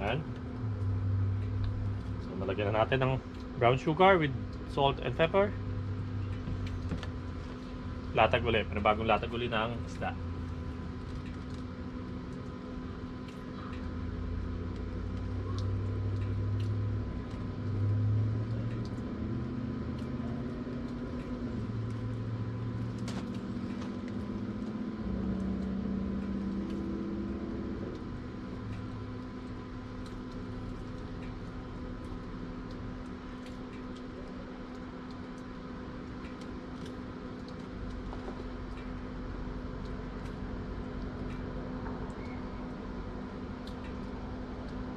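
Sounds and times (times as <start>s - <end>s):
passing vehicles rumbling: 0.0s - 3.5s, 15.8s - 31.6s
background hum: 0.0s - 44.9s.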